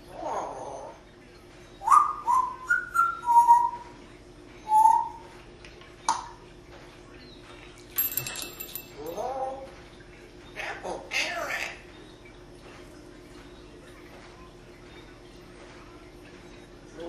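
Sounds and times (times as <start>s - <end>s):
parrot whistling: 1.8s - 3.9s, 4.6s - 5.2s.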